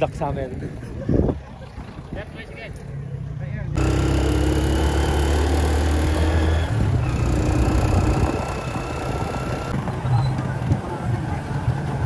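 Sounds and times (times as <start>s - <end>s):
road and wind noise: 0.0s - 12.0s
motorcycle engine running: 3.8s - 10.9s.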